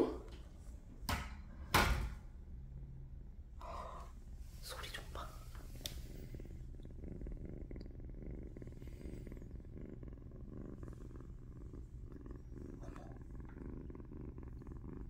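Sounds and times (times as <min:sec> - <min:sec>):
kitten purring: 0:03.5 - 0:15.0.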